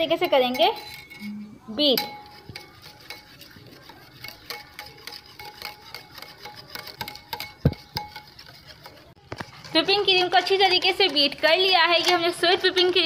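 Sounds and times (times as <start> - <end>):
glass bowl ringing: 0.0 - 2.8
whisk clicking in glass bowl: 0.0 - 13.0.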